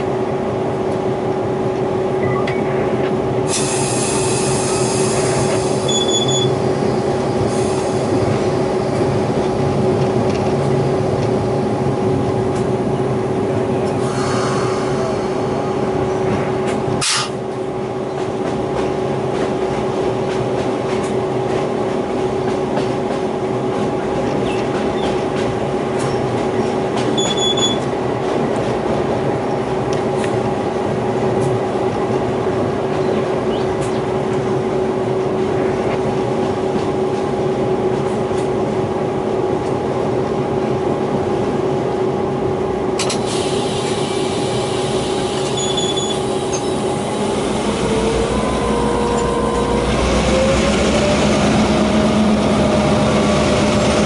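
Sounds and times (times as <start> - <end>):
locomotive engine drone: 0.0 - 54.0
wheel and rail noise: 43.0 - 54.0
constant whine: 46.2 - 54.0.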